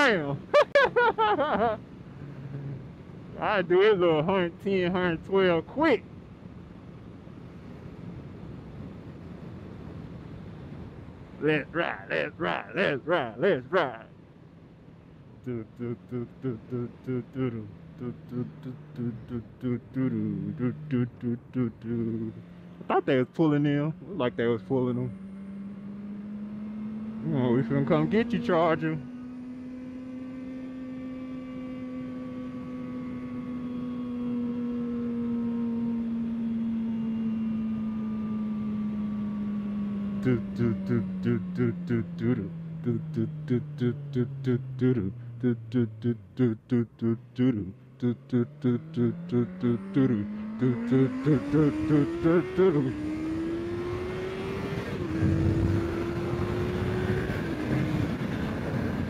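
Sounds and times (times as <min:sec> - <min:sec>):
motorcycle engine at high revs: 0:15.8 - 0:59.0
wind rush on microphone: 0:54.9 - 0:59.0.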